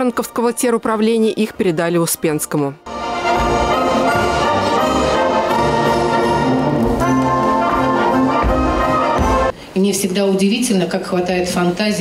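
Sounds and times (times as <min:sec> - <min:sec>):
orchestral music with brass: 0:02.9 - 0:09.5.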